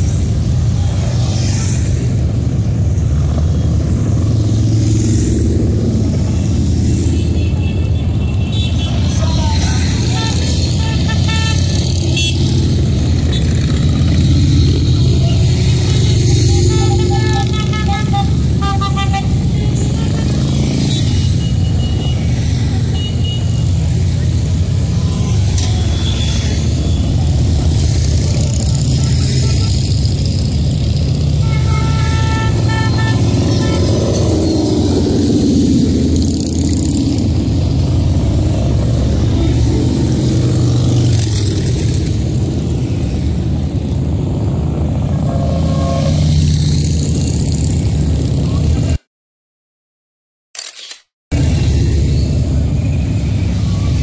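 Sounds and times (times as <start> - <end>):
motorcycle engines rumbling: 0.0 - 49.0, 51.3 - 54.0
horn toots: 9.9 - 12.6, 15.1 - 22.3, 28.5 - 30.3, 31.2 - 34.7, 45.1 - 46.5.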